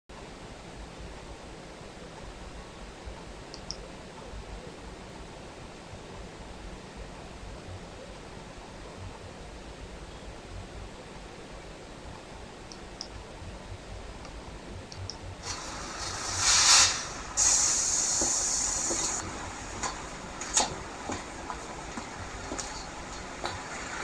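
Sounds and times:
compressed air hissing: 15.4 - 24.0.

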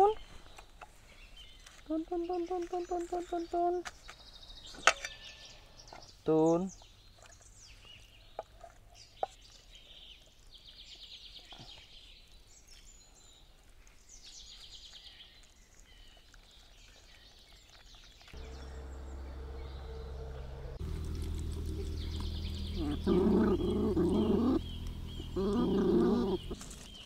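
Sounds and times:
steady low drone: 18.4 - 26.9
birds trilling: 18.4 - 27.0.

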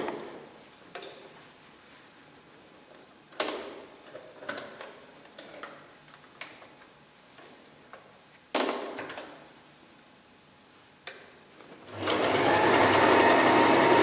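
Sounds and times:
fabric rustle: 0.4 - 3.1.

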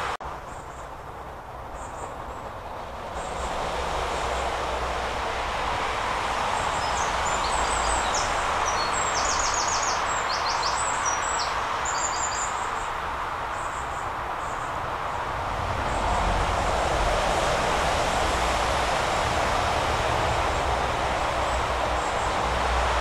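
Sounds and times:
songbird chirping and trilling: 6.6 - 12.9.

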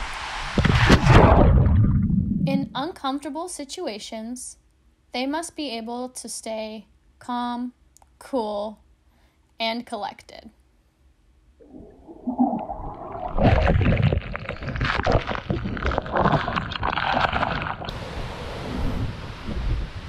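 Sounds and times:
waterfall rushing hiss: 17.9 - 20.0.

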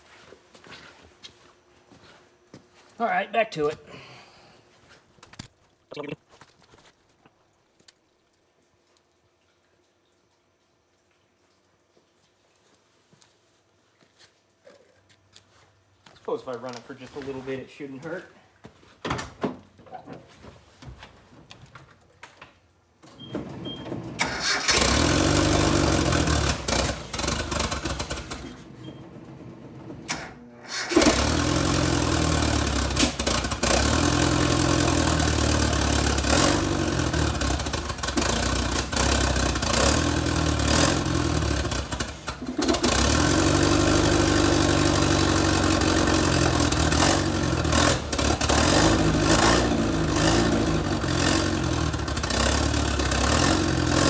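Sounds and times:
engine cranking: 24.1 - 54.0
engine running poorly: 24.7 - 54.0.

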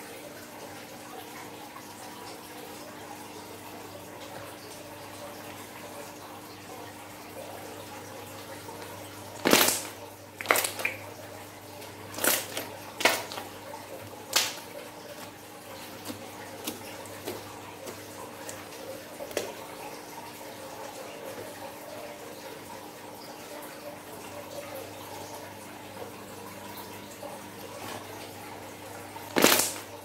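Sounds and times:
slime squelching and popping: 9.4 - 11.0, 29.3 - 29.9.

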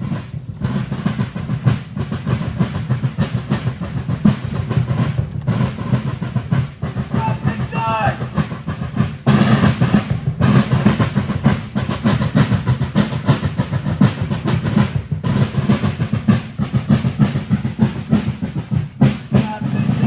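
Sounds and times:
marching snare and bass drums: 0.0 - 20.0.

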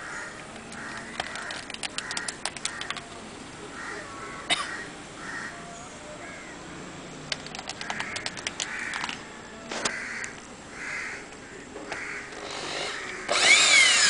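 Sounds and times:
crows cawing: 0.0 - 3.1, 3.8 - 5.6, 7.7 - 13.4
rapid light clicks: 0.5 - 3.1, 7.3 - 9.2.

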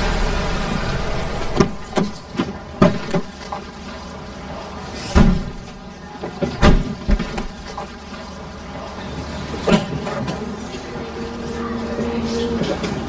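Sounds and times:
car idling: 0.0 - 3.4.

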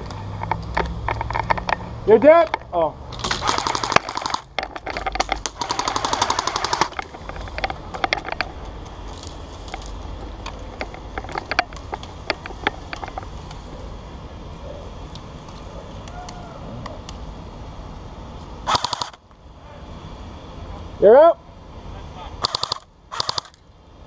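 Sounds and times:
airsoft guns firing: 3.2 - 4.6, 5.2 - 7.0, 18.7 - 19.2, 22.4 - 23.6.

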